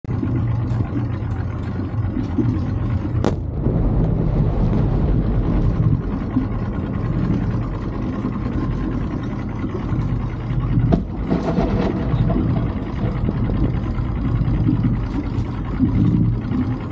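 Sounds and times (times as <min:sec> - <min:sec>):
outboard motor rumbling: 0:00.0 - 0:16.9
faint firework crack: 0:03.2 - 0:03.5
firework bang: 0:03.2 - 0:05.8.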